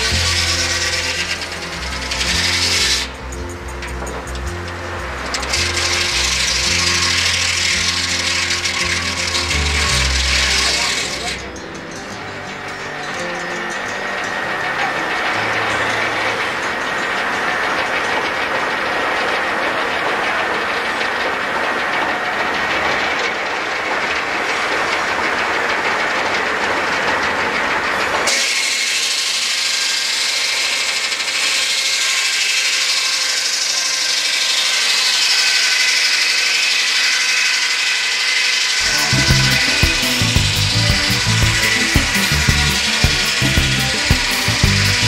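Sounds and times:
music: 0:00.0 - 0:18.8, 0:38.8 - 0:45.0
steam sawmill hiss and rumble: 0:00.0 - 0:45.0.

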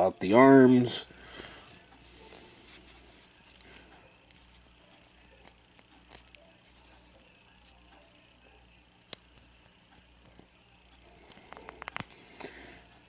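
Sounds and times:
plastic toy being handled: 0:04.3 - 0:07.8.

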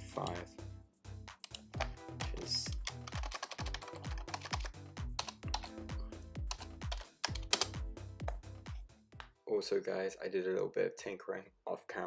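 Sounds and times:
background music with deep bass: 0:00.0 - 0:09.3
rapid sharp clicks: 0:01.4 - 0:05.7, 0:06.5 - 0:08.4.

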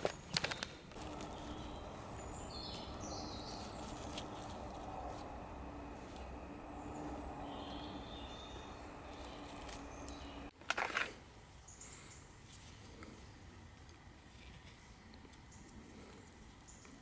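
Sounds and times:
gloved hands handling chestnut burrs: 0:00.0 - 0:11.1
faint bird chirps: 0:01.0 - 0:10.5.

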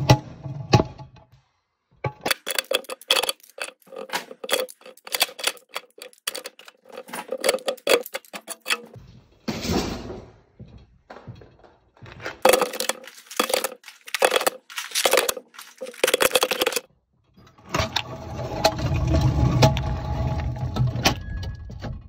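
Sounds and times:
steel hand tools clanking: 0:02.3 - 0:09.0.

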